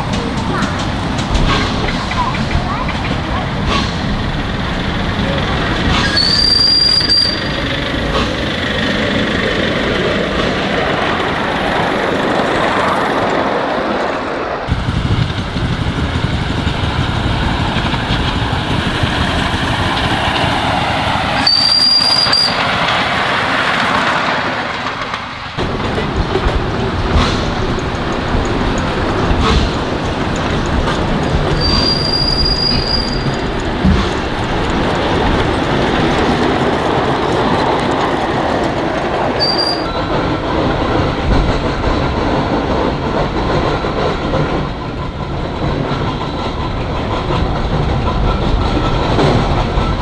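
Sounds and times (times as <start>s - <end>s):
miniature steam locomotive running: 0.0s - 13.6s, 14.7s - 50.0s
high steam whistle toot: 6.0s - 7.7s, 21.4s - 22.6s, 31.6s - 33.3s, 39.4s - 39.9s.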